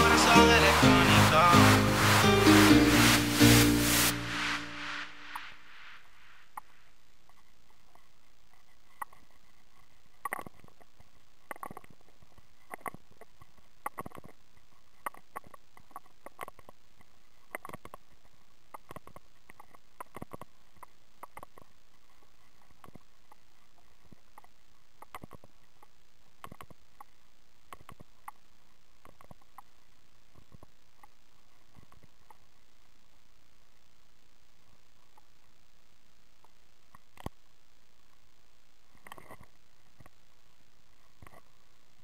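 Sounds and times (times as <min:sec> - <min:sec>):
steady hiss: 0:00.0 - 0:07.0.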